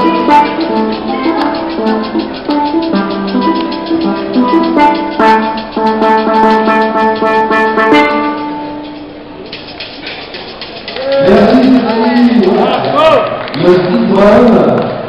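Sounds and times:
steel pan melody: 0.0 - 13.2
steady percussive beat: 0.0 - 13.5.

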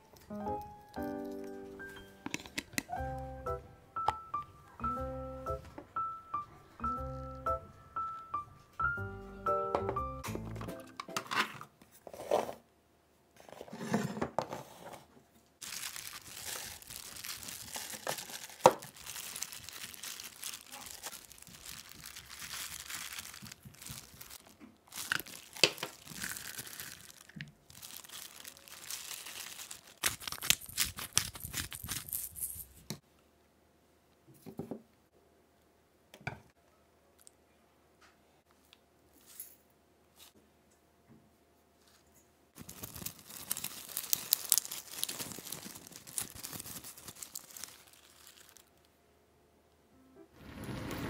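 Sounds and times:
food packaging tearing and crinkling: 15.6 - 32.4, 42.6 - 48.9.

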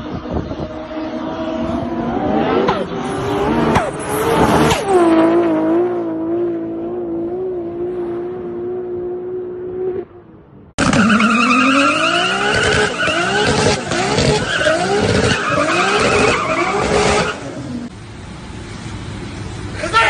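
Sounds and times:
car engine revving: 0.0 - 10.2, 10.8 - 17.9
tyres screeching: 10.8 - 17.6.

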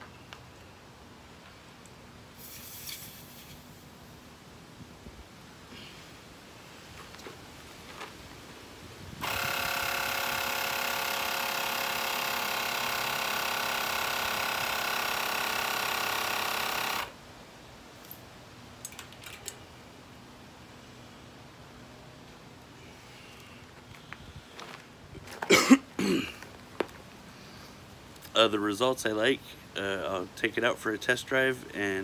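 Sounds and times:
air compressor motor running: 9.2 - 17.2.

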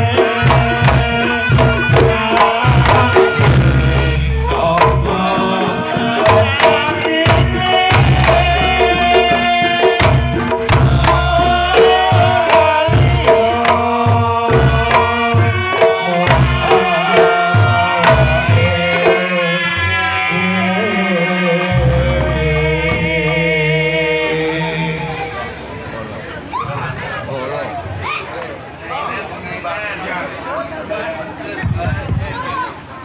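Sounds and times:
hand drum fast patterns: 0.0 - 20.2.

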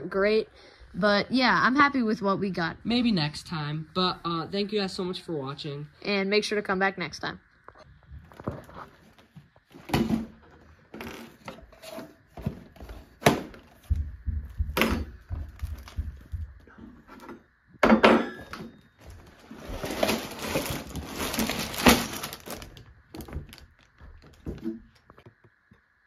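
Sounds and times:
plastic bags rustling: 15.4 - 16.3, 19.0 - 25.1
cardboard cracking and tearing: 19.2 - 24.7.

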